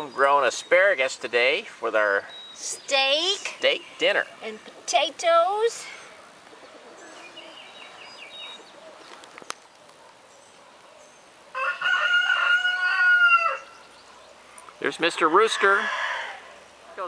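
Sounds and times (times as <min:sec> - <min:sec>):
rooster crowing: 0:11.5 - 0:13.8, 0:15.4 - 0:16.7.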